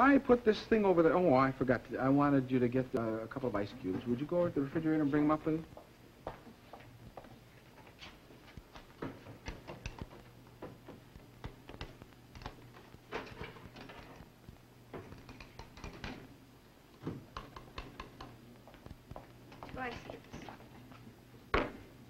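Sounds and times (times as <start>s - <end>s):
low steady hum: 0.0s - 22.0s
lab apparatus clicks: 14.9s - 16.3s.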